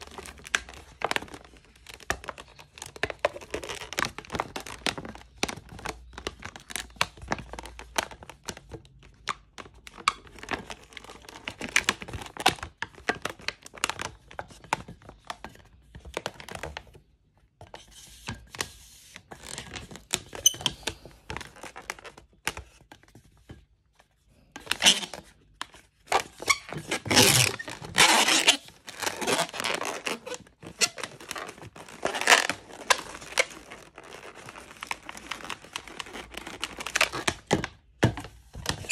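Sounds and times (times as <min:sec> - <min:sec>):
rubber balloons squeaking and creaking: 0:00.0 - 0:08.5, 0:19.4 - 0:22.5, 0:24.2 - 0:38.9.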